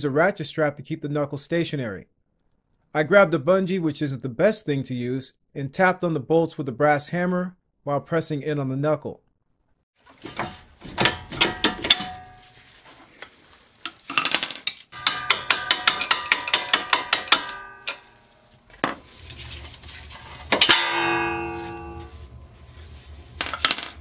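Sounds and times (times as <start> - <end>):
loud ringing clang: 14.3 - 18.4, 20.5 - 22.4, 23.4 - 24.0
hammer tapping on metal: 15.0 - 18.2.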